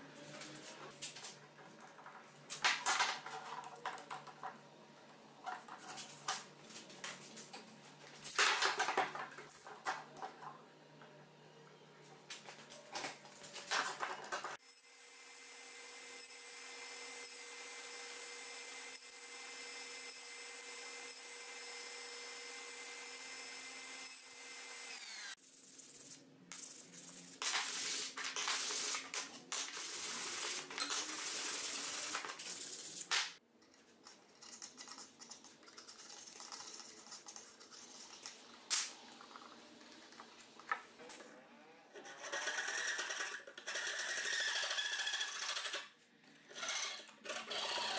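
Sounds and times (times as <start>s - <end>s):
table saw whining: 14.6s - 25.4s
hand saw cutting wood: 24.2s - 25.4s, 42.0s - 45.9s.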